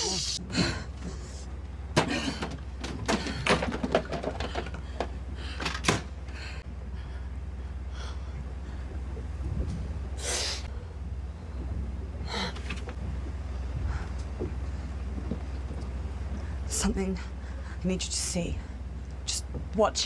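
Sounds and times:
steady low hum: 0:00.0 - 0:20.0
knocks and handling clatters: 0:02.0 - 0:06.1.

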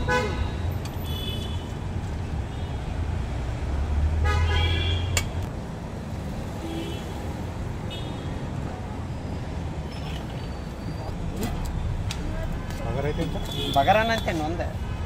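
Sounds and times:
vehicle horn toot: 0:00.0 - 0:01.6, 0:13.0 - 0:14.6
road traffic rumble: 0:00.0 - 0:15.0.

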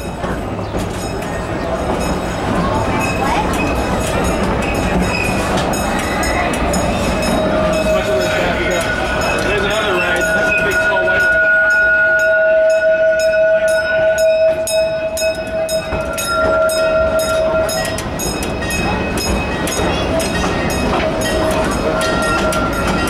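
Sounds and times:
train rumble: 0:00.0 - 0:23.0
train wheels clicking on rail joints: 0:00.0 - 0:23.0
steady high tone: 0:05.8 - 0:23.0.

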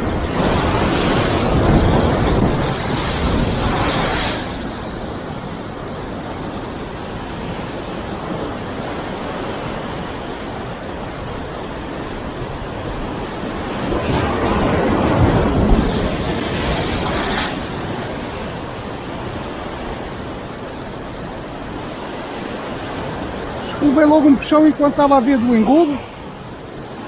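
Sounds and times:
surf breaking against rocks: 0:00.0 - 0:06.3, 0:12.2 - 0:27.0
wind buffeting microphone: 0:00.0 - 0:27.0.

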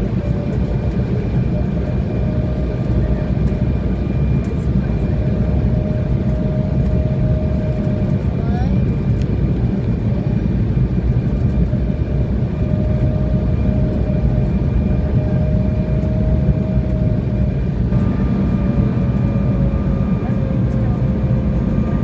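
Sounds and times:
jet engine and airflow rumble: 0:00.0 - 0:22.0
faint whine: 0:11.2 - 0:22.0.

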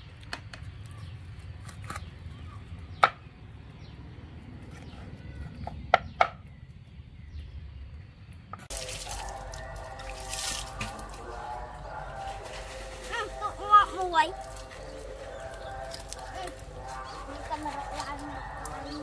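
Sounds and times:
fish slapping in plastic buckets: 0:08.7 - 0:13.1, 0:14.4 - 0:19.0.

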